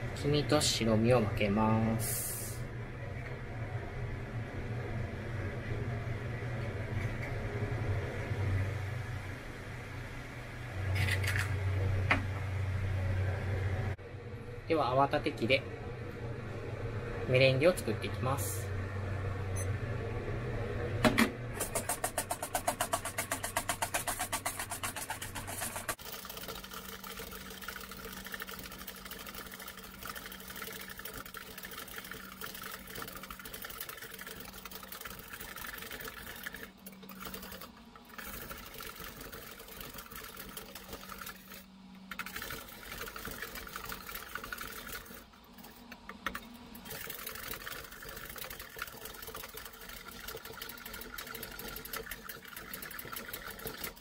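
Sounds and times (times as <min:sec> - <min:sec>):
whisk rattling against metal bowl: 0:21.6 - 0:45.8, 0:46.8 - 0:54.0.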